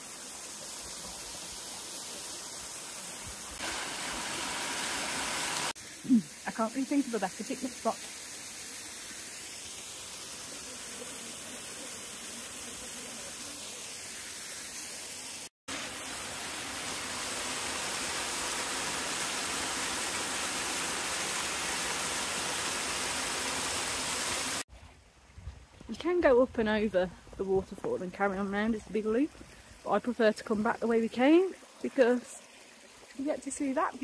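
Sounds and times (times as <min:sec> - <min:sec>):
small waterfall rushing: 0:00.0 - 0:24.7
stream running over stones: 0:00.0 - 0:34.0.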